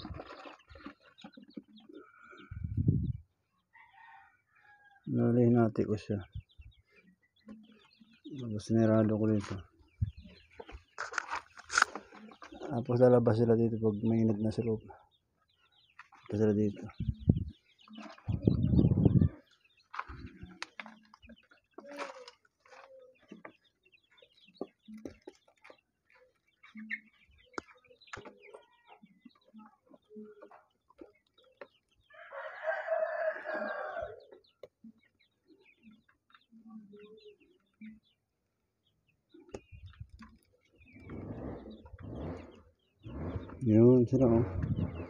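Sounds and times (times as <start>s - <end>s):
chicks peeping: 0.0s - 45.0s
small scratching sounds: 10.5s - 12.6s, 19.5s - 23.6s
chicken crowing: 32.1s - 34.2s.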